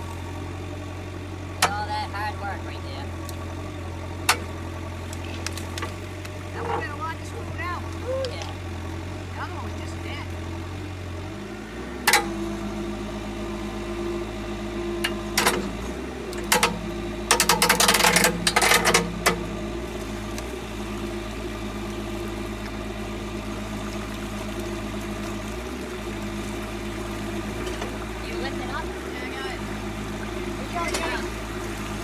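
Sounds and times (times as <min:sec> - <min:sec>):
engine running: 0:00.0 - 0:32.0
rattling clatter: 0:16.4 - 0:19.4.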